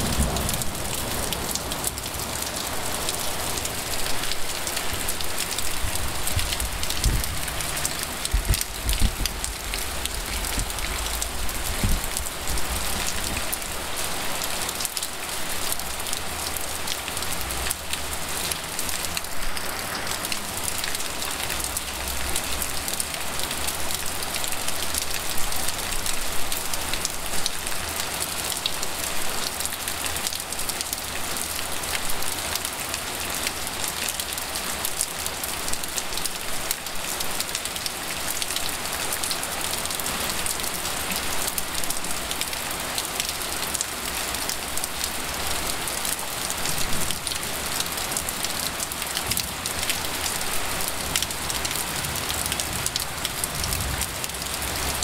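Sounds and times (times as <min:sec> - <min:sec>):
falling water low rumble: 0:00.0 - 0:29.1
heavy rain patter: 0:00.0 - 0:55.0.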